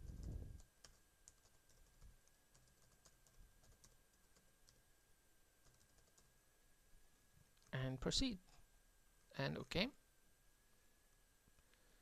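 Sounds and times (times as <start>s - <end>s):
faint computer keyboard typing: 0.0s - 4.9s, 5.6s - 6.4s.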